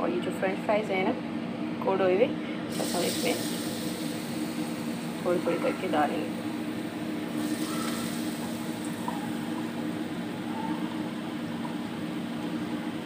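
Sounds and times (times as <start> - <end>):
steady low hum: 0.0 - 13.0
oil sizzling and bubbling: 2.7 - 13.0.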